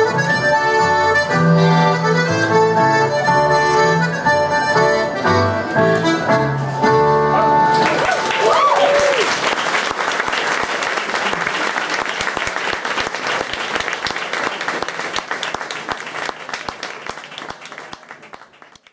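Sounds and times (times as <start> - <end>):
audience applauding: 7.6 - 18.9.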